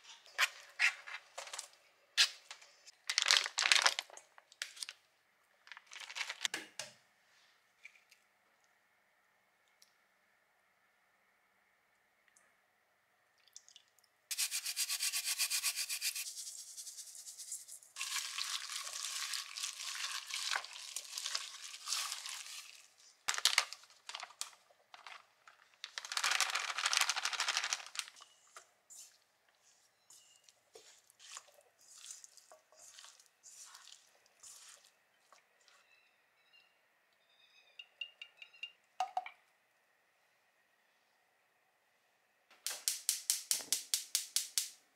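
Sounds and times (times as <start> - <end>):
hands squishing chicken in bowl: 18.0 - 23.1, 29.0 - 35.8.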